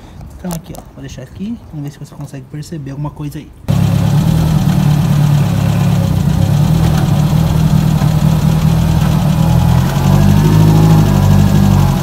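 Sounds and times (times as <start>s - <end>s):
car engine running under load: 3.7s - 12.0s
shuddering vibration: 3.7s - 12.0s.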